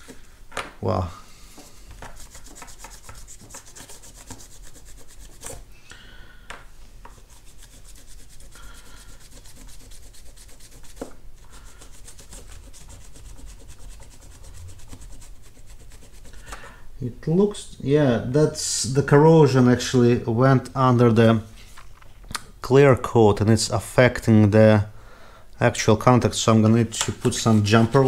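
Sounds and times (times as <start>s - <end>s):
tissue scrubbing circuit board: 27.0s - 28.0s.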